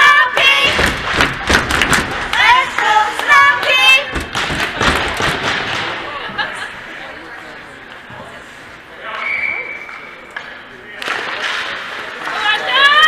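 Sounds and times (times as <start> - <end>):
thumps: 0.5 - 2.6, 3.6 - 6.0.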